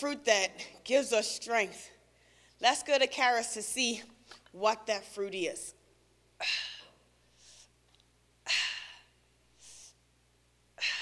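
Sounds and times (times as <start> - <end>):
woman breathing hard: 6.4 - 7.8, 8.4 - 10.0, 10.8 - 11.0.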